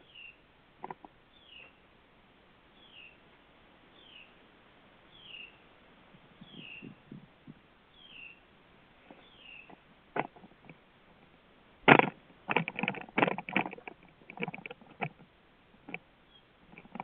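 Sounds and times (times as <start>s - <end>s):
small bird chirping: 0.0s - 1.9s, 2.7s - 3.3s, 3.9s - 4.4s, 5.1s - 5.7s, 6.3s - 9.9s, 16.2s - 17.0s.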